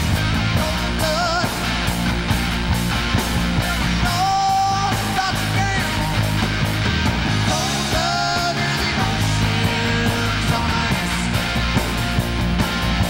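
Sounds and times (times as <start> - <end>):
bass guitar: 0.0 - 13.0
electric guitar: 0.0 - 13.0
steady drum beat: 0.0 - 13.0
man singing: 0.4 - 1.8, 3.5 - 6.4, 7.4 - 11.5.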